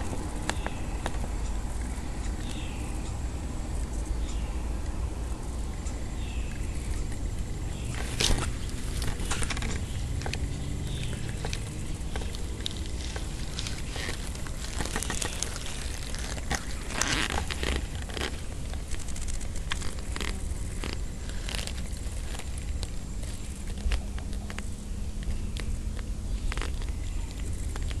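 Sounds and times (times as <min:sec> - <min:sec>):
grass brushing against microphone: 0:06.7 - 0:24.7.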